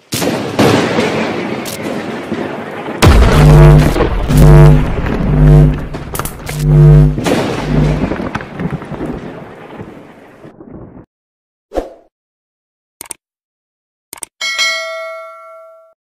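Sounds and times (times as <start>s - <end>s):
deep brass-like boom: 3.0s - 8.3s.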